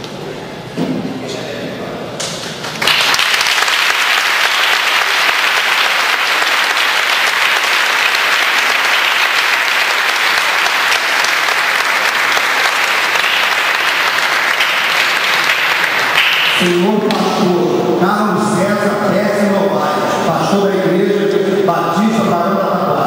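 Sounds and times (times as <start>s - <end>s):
audience applauding: 2.6s - 17.3s.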